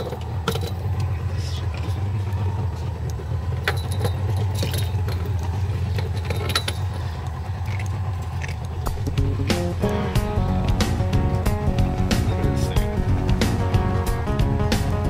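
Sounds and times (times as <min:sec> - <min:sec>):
metallic clinks and rattles: 0:00.0 - 0:01.0, 0:03.5 - 0:09.2
boat engine idling: 0:00.0 - 0:15.0.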